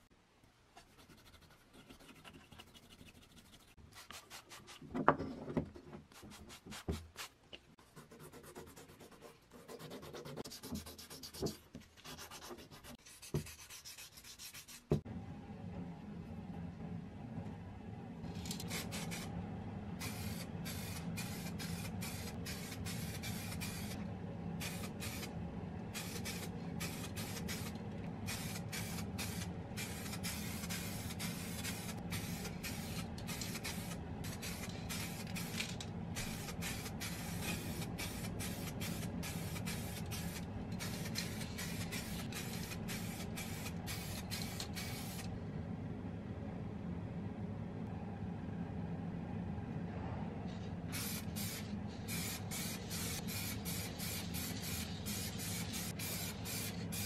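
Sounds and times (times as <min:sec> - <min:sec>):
steady low hum: 0:07.6 - 0:57.0
aerosol spray can hissing: 0:18.6 - 0:19.3, 0:20.0 - 0:24.0, 0:24.6 - 0:25.3, 0:26.0 - 0:45.3, 0:51.0 - 0:57.0.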